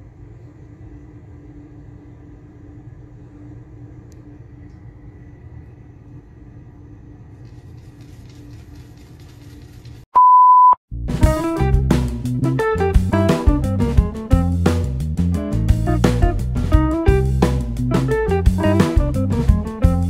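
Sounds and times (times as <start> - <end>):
low rumble with faint hum: 0.0 - 9.3
electronic beep tone: 10.2 - 10.8.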